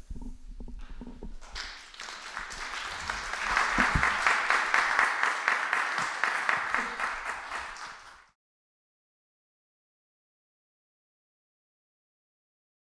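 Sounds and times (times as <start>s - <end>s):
audience applauding: 1.4s - 8.4s.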